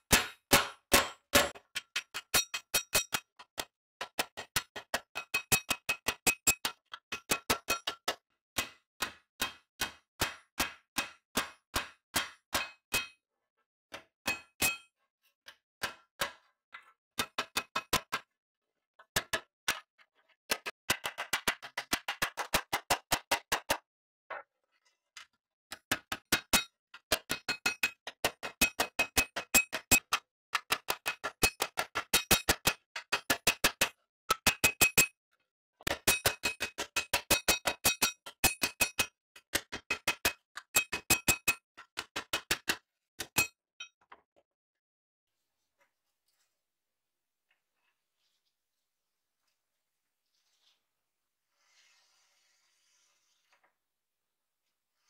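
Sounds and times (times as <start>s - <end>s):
hammer striking steel shovel: 0.0s - 3.3s.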